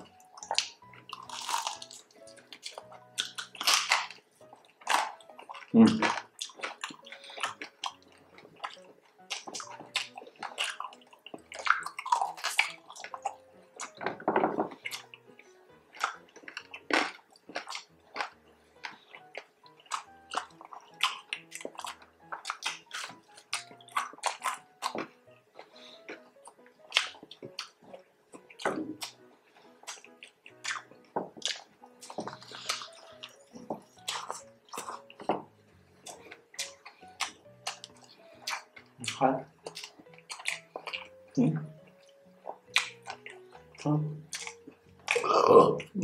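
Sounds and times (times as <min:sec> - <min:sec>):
wet mouth sounds: 0:00.0 - 0:35.3, 0:36.0 - 0:46.0
crunchy chewing: 0:00.0 - 0:46.0
faint background music: 0:00.0 - 0:46.0.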